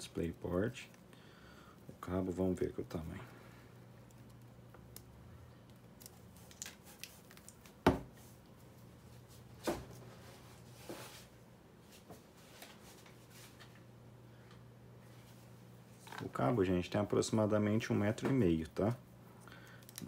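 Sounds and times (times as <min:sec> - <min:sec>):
plastic packaging crinkling: 0:05.8 - 0:07.8.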